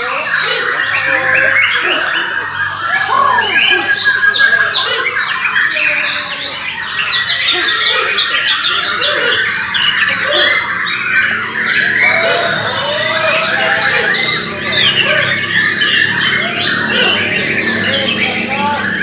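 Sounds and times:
chorus of caged songbirds: 0:00.0 - 0:19.0.

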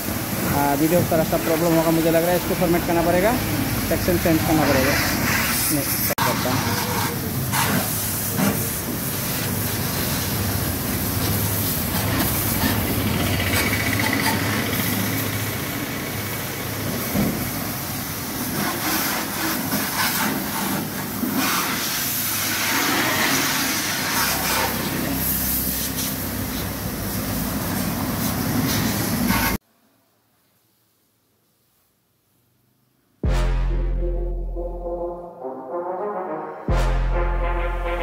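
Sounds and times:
water spraying from hose: 0:00.0 - 0:29.6.

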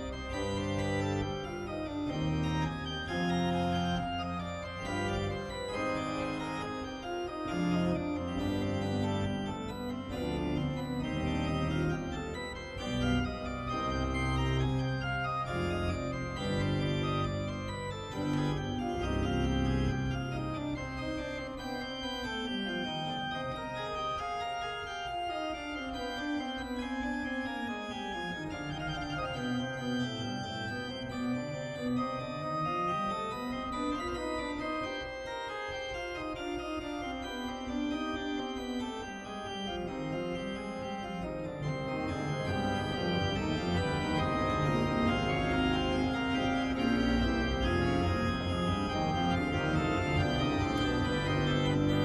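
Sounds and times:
electronic organ chords: 0:00.0 - 0:52.0
organ bass line: 0:39.0 - 0:52.0.

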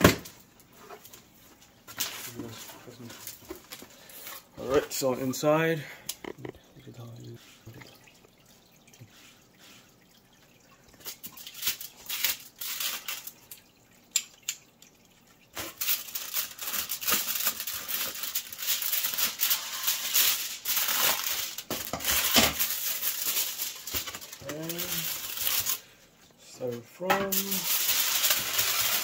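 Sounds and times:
foil insulation crinkling: 0:00.1 - 0:06.5, 0:11.0 - 0:13.6, 0:15.6 - 0:26.0, 0:26.6 - 0:29.0.

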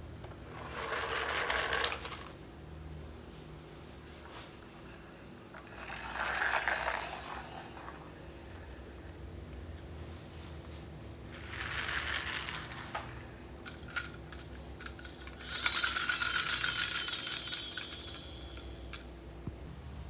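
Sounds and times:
toy trucks rolling on tiles: 0:00.4 - 0:02.4, 0:05.6 - 0:08.0, 0:11.3 - 0:19.0
fast rattle: 0:11.4 - 0:19.0.

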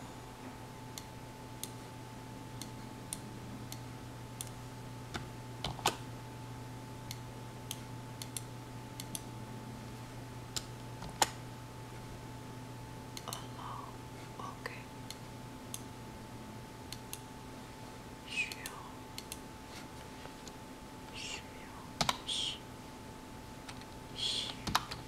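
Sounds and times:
low hum: 0:00.0 - 0:25.0
keyboard typing: 0:22.0 - 0:22.2, 0:23.7 - 0:25.0.

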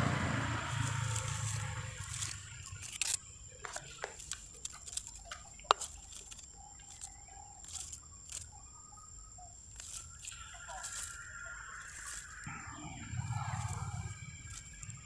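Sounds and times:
low engine hum: 0:00.0 - 0:04.0, 0:12.2 - 0:15.0.

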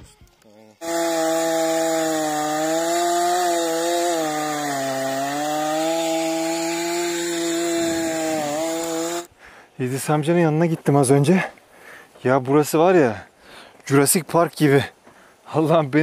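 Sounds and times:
chainsaw cutting log: 0:00.8 - 0:09.3.

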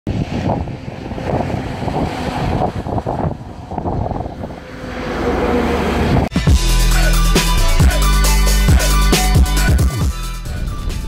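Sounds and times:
wind buffeting microphone: 0:00.1 - 0:06.3.

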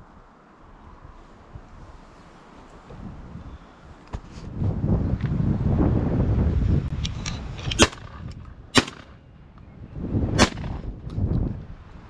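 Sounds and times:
wind rumble on microphone: 0:00.0 - 0:12.0
shotgun shots: 0:07.8 - 0:08.1, 0:08.8 - 0:09.2, 0:10.4 - 0:10.8.

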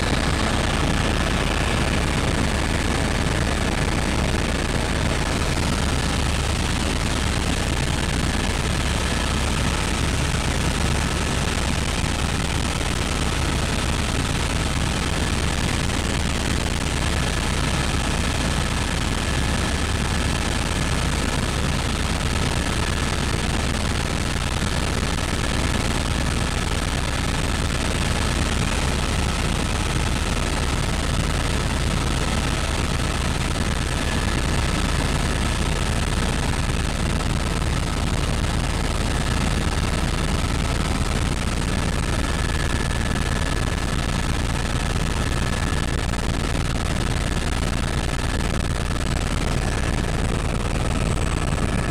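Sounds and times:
high whine: 0:00.0 - 0:10.8
helicopter rotor and engine noise: 0:00.0 - 0:51.9.

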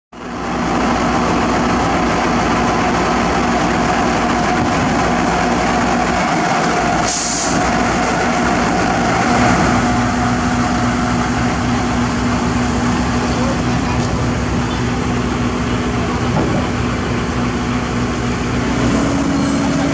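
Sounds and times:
diesel engine idling: 0:00.2 - 0:19.9
air hiss: 0:07.0 - 0:07.6.

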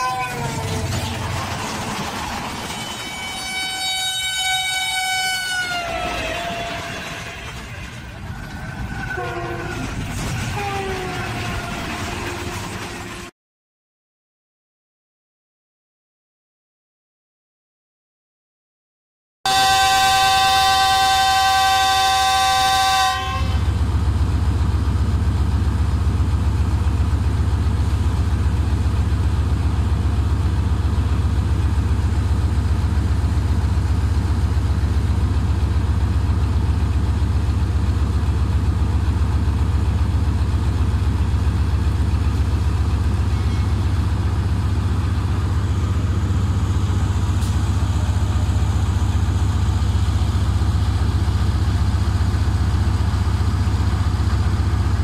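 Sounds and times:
locomotive air horn: 0:00.0 - 0:00.9, 0:02.7 - 0:08.1, 0:08.9 - 0:13.3, 0:19.5 - 0:23.8
diesel engine idling: 0:23.8 - 0:55.0.

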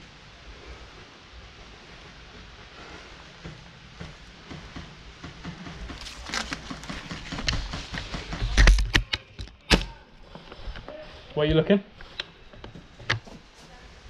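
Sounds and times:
leafy fabric rustling: 0:00.0 - 0:08.8
sharp knocks and clicks: 0:03.4 - 0:09.6.

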